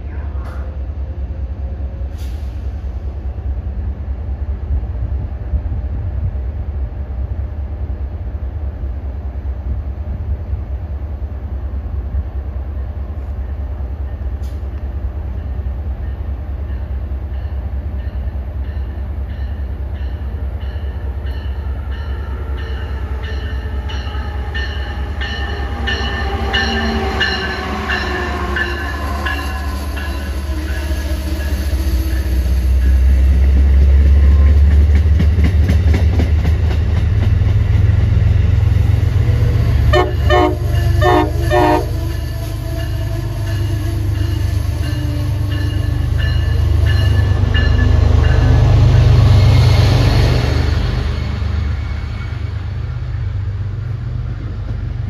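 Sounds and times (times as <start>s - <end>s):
train rumble: 0.0s - 55.0s
train whine falling in pitch: 37.5s - 49.1s.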